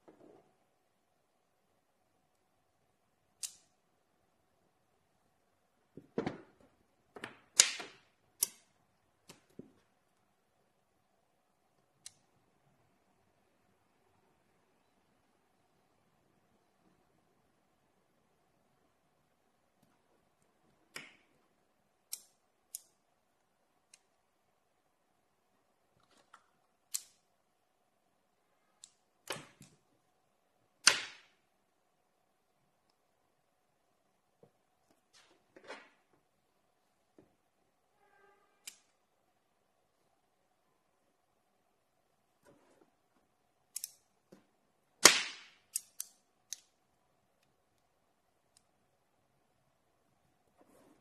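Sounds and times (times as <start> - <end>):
metallic clicks of magnets: 22.0 - 23.0, 43.7 - 44.1, 45.5 - 46.8.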